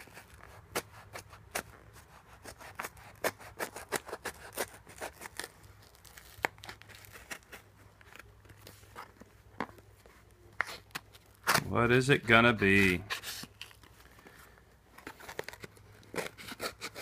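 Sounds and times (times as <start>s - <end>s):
knife slitting packing tape: 0.0s - 7.7s, 10.6s - 11.7s, 15.0s - 17.0s
tape and paper crackling: 0.0s - 17.0s.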